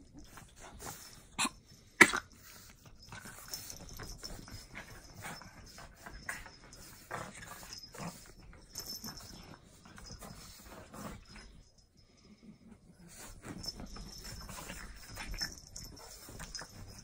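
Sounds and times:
paws scuffling on bedding: 13.1 - 17.0.

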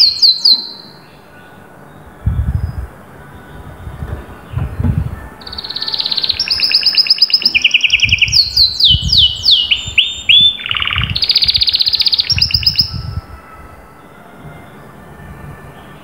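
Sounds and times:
canary singing trills: 0.0 - 15.0.

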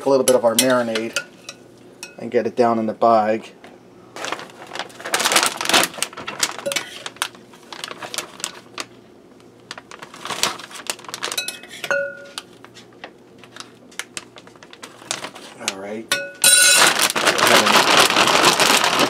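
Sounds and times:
plastic bag crinkling: 4.2 - 9.0, 9.6 - 19.0
short ringing clink: 16.1 - 16.8.

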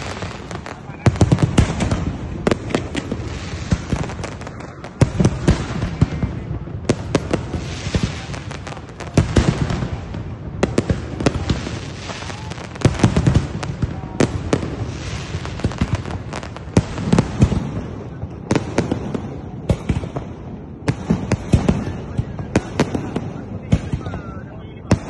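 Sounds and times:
fireworks banging: 0.0 - 25.0.

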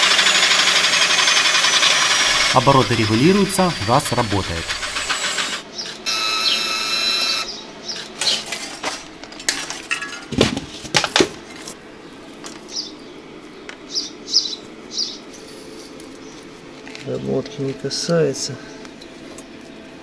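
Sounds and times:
electric motor whining: 0.3 - 7.5.

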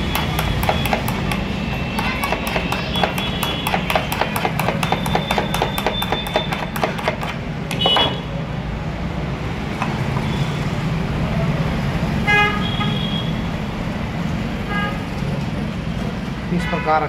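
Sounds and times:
road traffic rumble: 0.0 - 17.0
vehicle horn toot: 7.8 - 8.3, 12.3 - 13.4.

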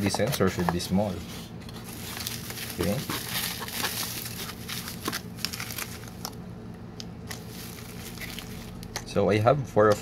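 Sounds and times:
bubble wrap crinkling: 1.8 - 6.4, 7.3 - 9.0
plastic bags rustling: 1.8 - 6.4, 7.3 - 9.0.

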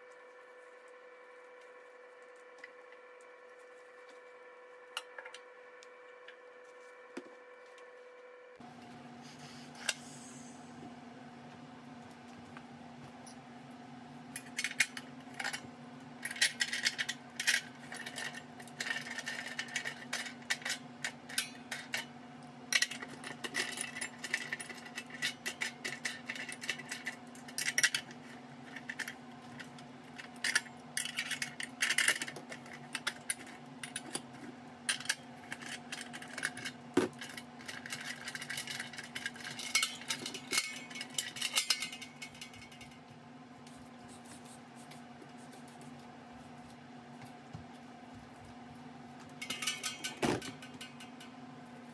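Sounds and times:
steady low hum: 0.0 - 51.9
metal wing nuts clicking and rattling: 34.9 - 43.0, 49.4 - 51.4.

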